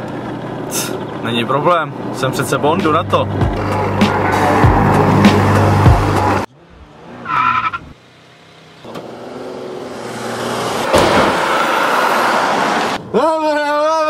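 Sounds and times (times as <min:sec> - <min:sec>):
car engine and tyre noise: 0:00.0 - 0:13.2
tyre squeal: 0:07.2 - 0:08.0.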